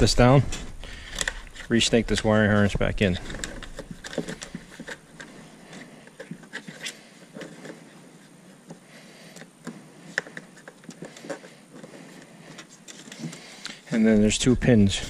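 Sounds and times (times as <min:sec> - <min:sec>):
plastic trim clicks and rustles: 0:01.0 - 0:07.6.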